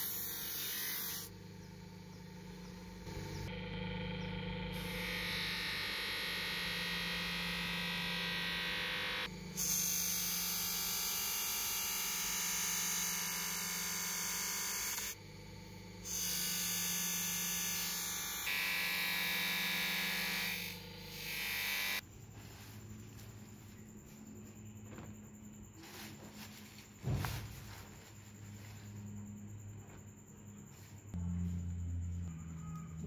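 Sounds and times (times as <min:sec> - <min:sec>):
electric motor humming: 0:00.0 - 0:22.0.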